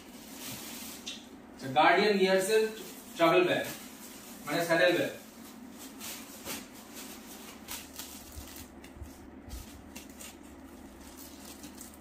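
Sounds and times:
plastic bag crinkling: 2.7 - 12.0.

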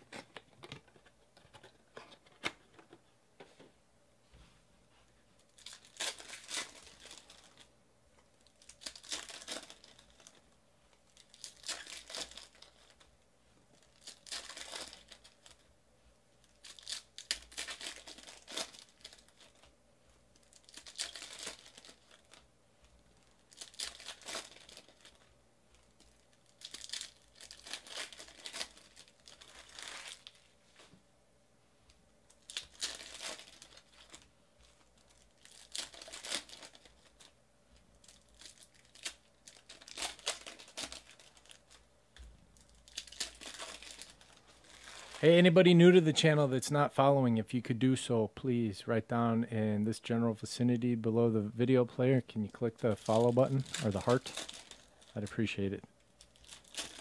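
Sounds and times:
foil wrappers tearing and crinkling: 5.5 - 7.7, 8.4 - 10.4, 11.1 - 13.1, 13.8 - 15.7, 16.4 - 19.7, 20.4 - 22.4, 23.2 - 30.6, 32.4 - 37.3, 38.0 - 41.8, 42.6 - 45.3, 52.8 - 55.4, 56.1 - 57.0.

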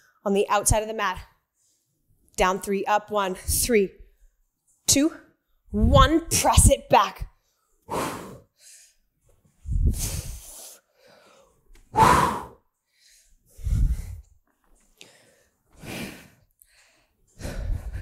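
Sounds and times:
woman breathing hard: 7.6 - 18.0.

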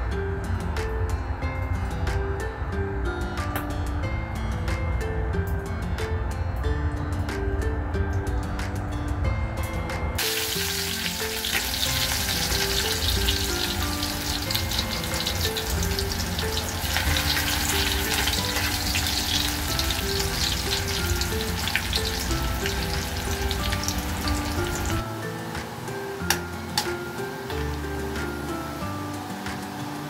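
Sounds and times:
background music: 0.0 - 30.0
oil sizzling in a wok: 10.2 - 30.0.

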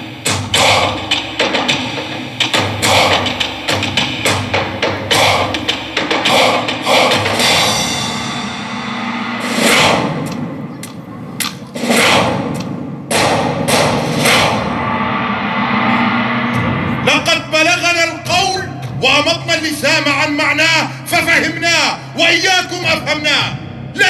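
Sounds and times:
booming hits with echo: 11.7 - 17.3
low sustained drone: 14.5 - 17.6
man speaking: 17.0 - 24.0.

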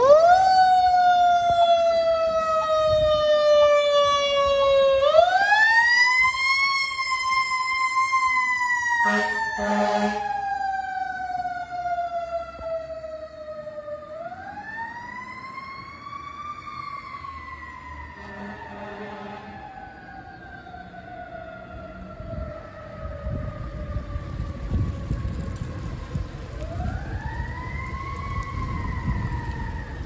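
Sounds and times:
air horn blasts: 9.0 - 10.3, 18.2 - 19.6.

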